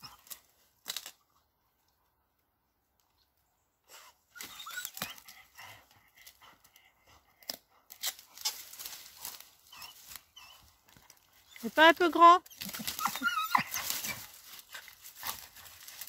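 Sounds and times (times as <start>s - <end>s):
dry leaves rustling: 8.3s - 16.0s
short high squeaks: 12.4s - 14.3s.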